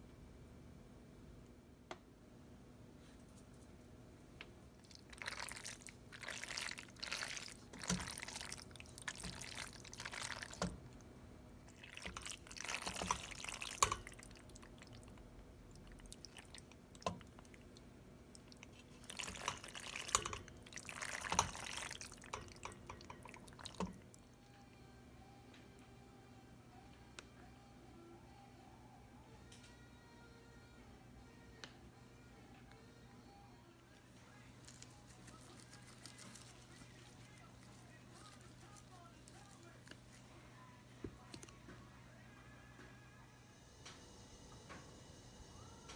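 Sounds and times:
spoon stirring thick pasta: 4.8s - 11.0s, 11.6s - 24.2s.

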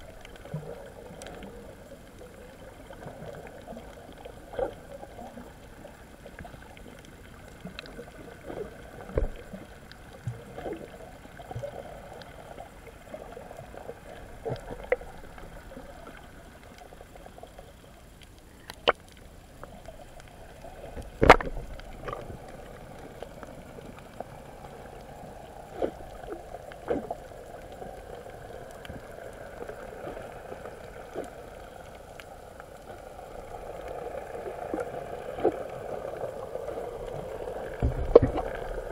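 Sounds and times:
muffled underwater wash: 0.0s - 38.9s
underwater knocks and clicks: 7.6s - 12.3s, 14.2s - 15.5s, 20.9s - 24.2s, 37.1s - 38.9s.

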